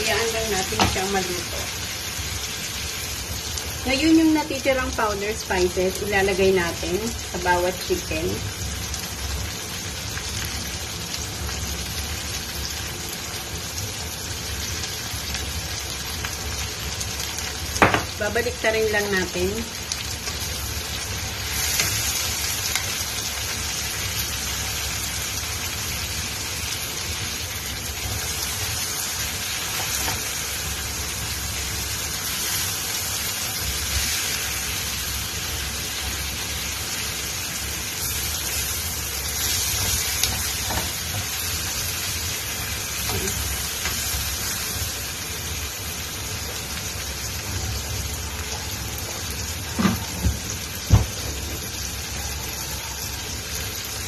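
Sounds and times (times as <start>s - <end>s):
meat and onions sizzling in a pan: 0.0s - 54.0s
spatula knocking on pan: 17.8s - 18.2s.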